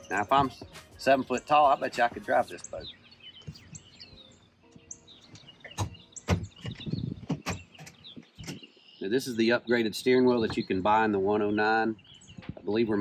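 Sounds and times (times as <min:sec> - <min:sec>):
birds chirping: 0:00.0 - 0:13.0
knocks and clunks in boat: 0:05.3 - 0:08.7, 0:10.4 - 0:10.8.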